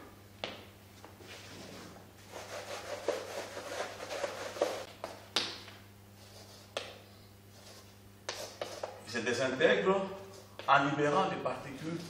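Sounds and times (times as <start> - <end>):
eraser scrubbing blackboard: 1.5 - 4.9, 7.5 - 9.0.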